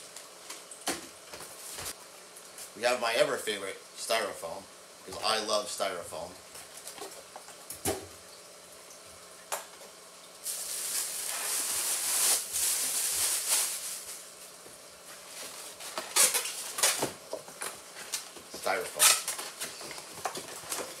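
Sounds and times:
packing material rustling: 10.4 - 14.6, 15.2 - 17.2.

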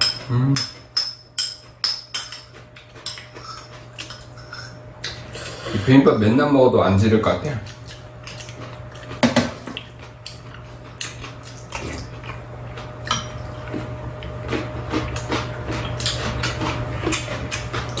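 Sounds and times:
cutlery clinking on bowls: 0.0 - 4.8, 13.0 - 13.6
steady low hum: 0.0 - 18.0.

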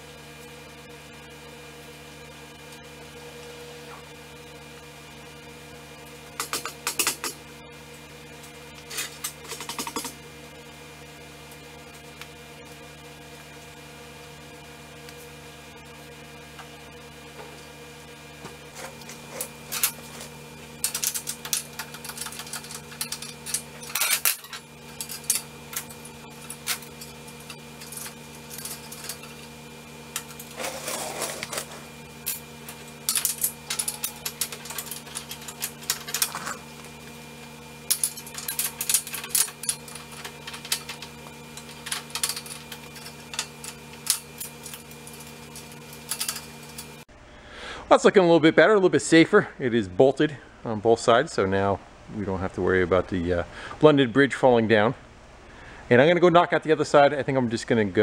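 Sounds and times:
steady hum: 0.0 - 58.0
metal scraping: 18.7 - 36.9
wrenches clinking against steel: 20.8 - 29.4, 32.3 - 36.6, 37.9 - 47.0.

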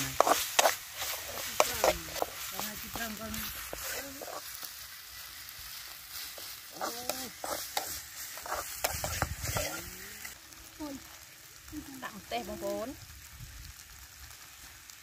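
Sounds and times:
metal ladle scraping a pan: 0.0 - 4.6, 6.0 - 10.4
spice paste sizzling in oil: 0.0 - 15.0.

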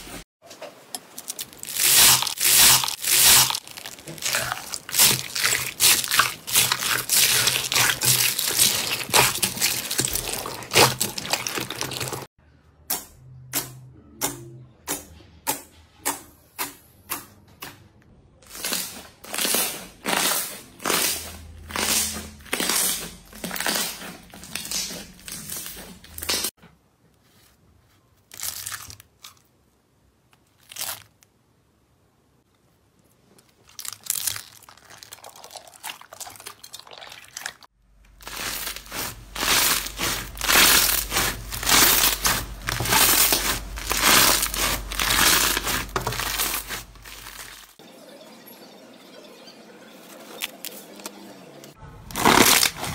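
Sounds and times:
slime crackling: 1.2 - 12.3, 18.5 - 26.5, 33.4 - 47.8, 52.1 - 52.9.

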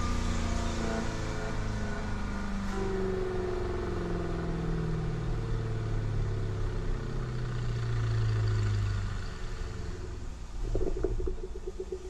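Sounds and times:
car engine running: 8.9 - 12.0.

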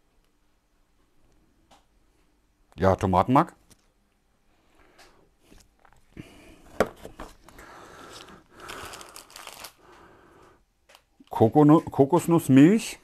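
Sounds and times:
packaging rustling and crinkling: 6.8 - 9.9.

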